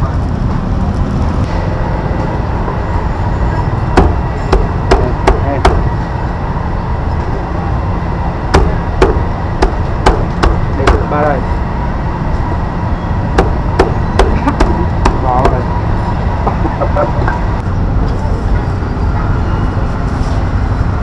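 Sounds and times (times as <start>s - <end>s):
low rumble of street noise: 0.0s - 21.0s
cleaver chopping on wooden block: 8.6s - 11.1s.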